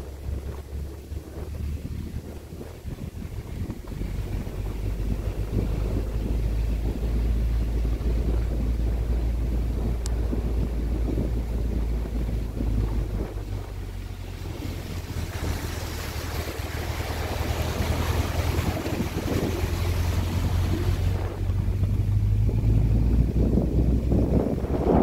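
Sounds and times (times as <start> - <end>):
vehicle engine humming: 0.0 - 25.0
tyres hissing through water: 14.2 - 22.4.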